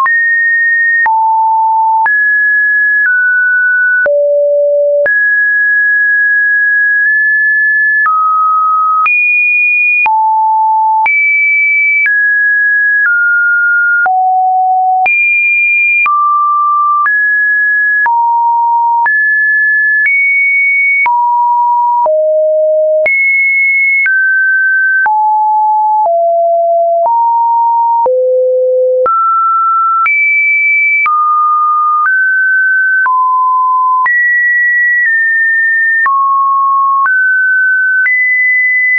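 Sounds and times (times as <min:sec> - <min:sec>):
sine test tone: 0:04.1 - 0:05.2, 0:21.9 - 0:23.0, 0:25.9 - 0:30.0.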